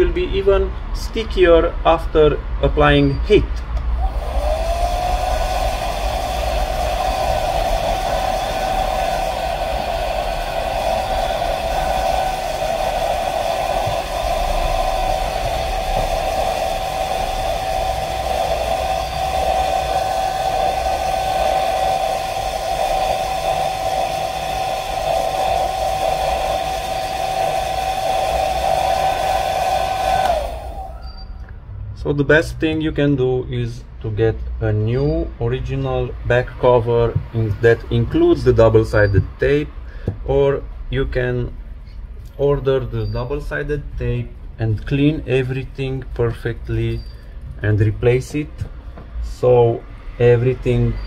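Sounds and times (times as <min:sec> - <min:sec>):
hair dryer running: 0:04.0 - 0:31.1.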